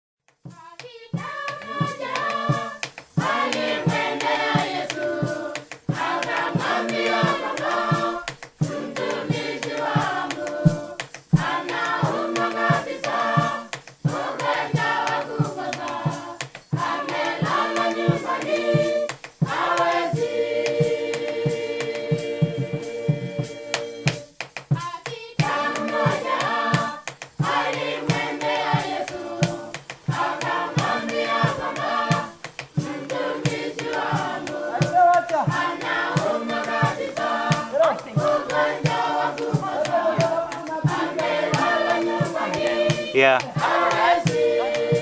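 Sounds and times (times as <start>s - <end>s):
sharp claps: 0.3s - 45.0s
choir singing: 0.5s - 45.0s.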